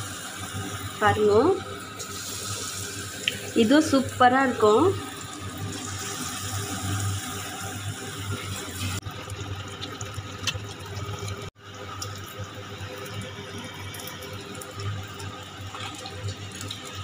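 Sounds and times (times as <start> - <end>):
food sizzling in hot oil: 0.0 - 17.0.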